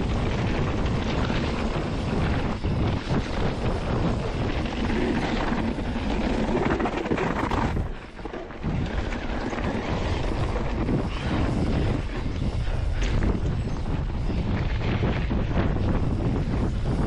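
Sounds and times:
mountain bike rumbling and rattling: 0:00.0 - 0:17.0
wind buffeting microphone: 0:00.0 - 0:17.0.

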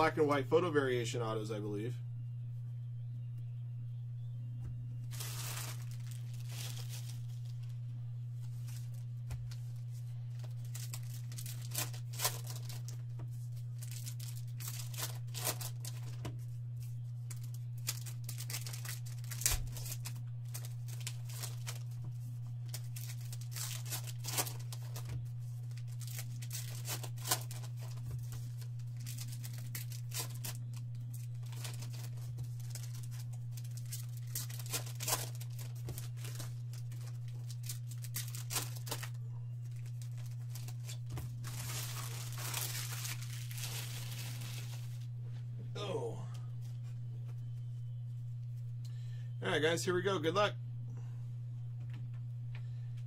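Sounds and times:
steady low hum: 0:00.0 - 0:53.0
wrappers torn and crinkled: 0:05.0 - 0:45.1.

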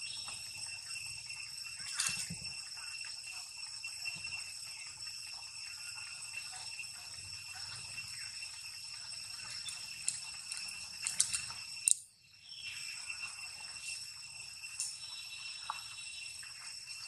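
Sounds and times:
high-pitched insect drone: 0:00.0 - 0:17.0.

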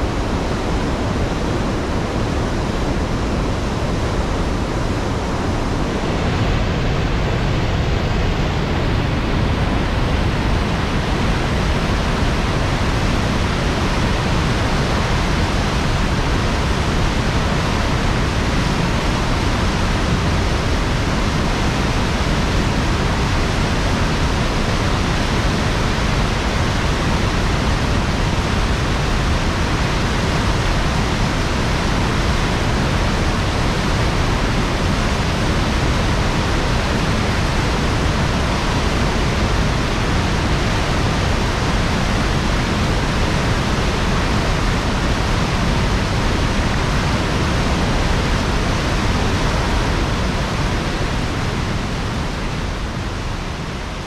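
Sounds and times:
water rushing from dam gate: 0:00.0 - 0:54.0.

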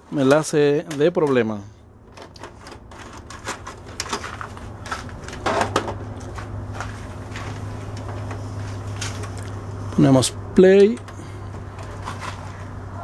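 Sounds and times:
tape player clicks and clunks: 0:00.2 - 0:06.1
low hum: 0:01.6 - 0:13.0.

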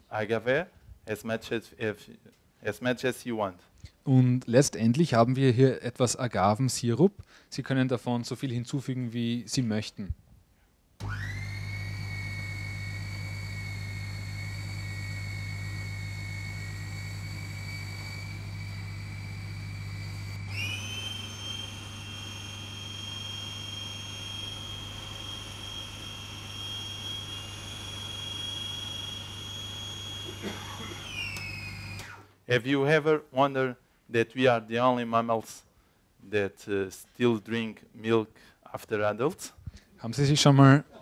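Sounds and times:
food processor motor whine: 0:11.0 - 0:32.3.

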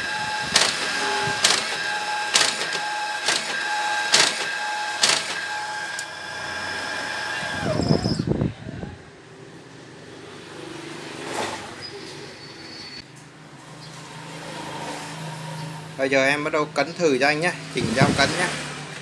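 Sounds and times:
machine motor whine: 0:00.0 - 0:08.4.

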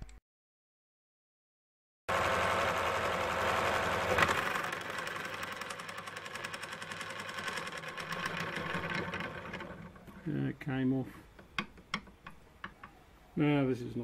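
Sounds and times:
metal lathe running: 0:02.1 - 0:10.2.

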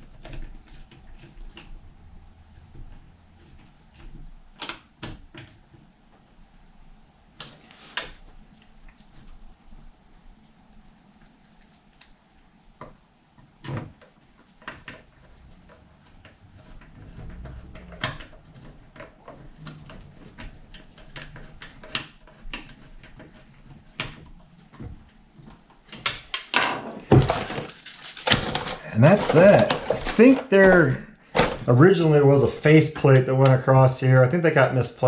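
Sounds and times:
knocks and clatter: 0:13.6 - 0:31.8.

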